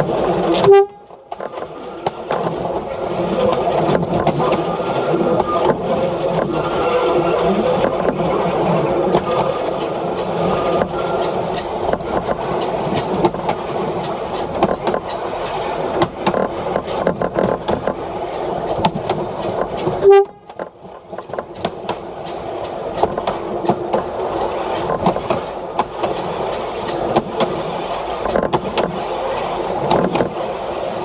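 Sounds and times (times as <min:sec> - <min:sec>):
railcar running noise: 0:00.0 - 0:31.0
wheels clicking over rail joints: 0:00.0 - 0:31.0
short horn toot: 0:00.6 - 0:01.1, 0:20.0 - 0:20.5.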